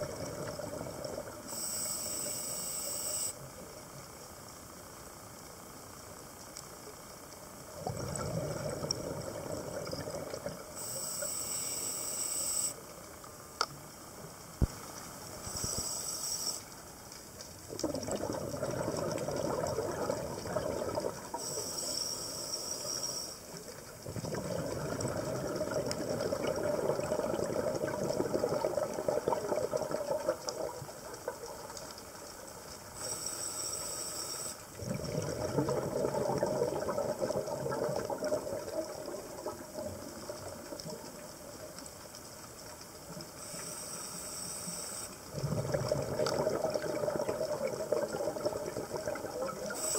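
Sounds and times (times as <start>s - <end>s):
hissing regulator inhale: 1.5s - 3.4s, 10.8s - 12.8s, 15.4s - 16.7s, 21.4s - 23.5s, 33.0s - 34.6s, 43.4s - 45.2s, 49.7s - 49.9s
exhaled bubbles rushing: 7.8s - 10.6s, 17.7s - 21.4s, 24.0s - 31.5s, 34.8s - 41.2s, 45.3s - 49.8s.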